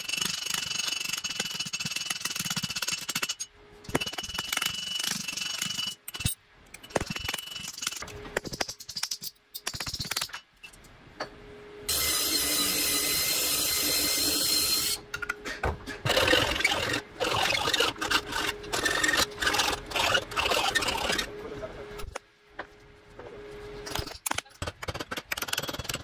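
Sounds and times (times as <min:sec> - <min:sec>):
file on metal: 0:11.9 - 0:15.0, 0:16.0 - 0:21.3.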